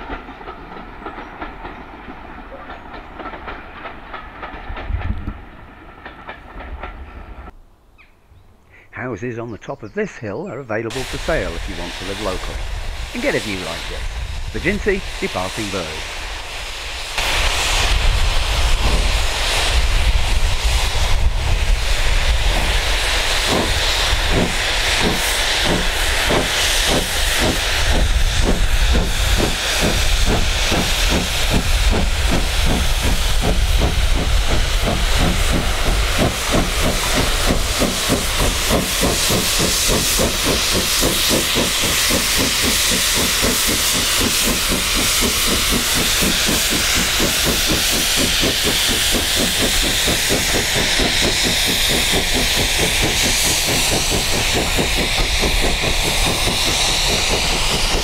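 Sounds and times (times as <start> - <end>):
steam locomotive exhaust chuffs: 10.8 - 58.0.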